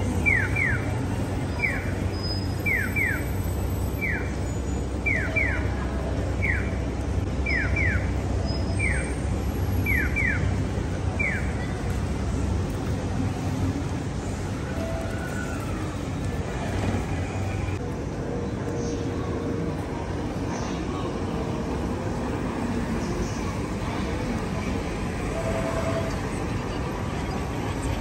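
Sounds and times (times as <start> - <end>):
city traffic hum: 0.0 - 28.0.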